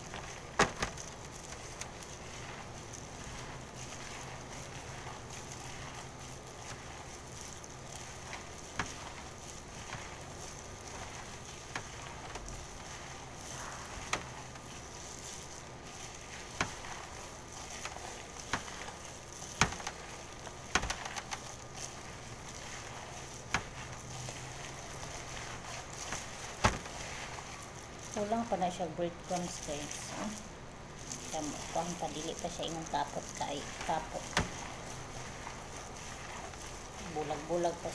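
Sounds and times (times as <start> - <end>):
hands kneading raw meat: 0.0 - 37.9
steady background hiss: 0.0 - 37.9.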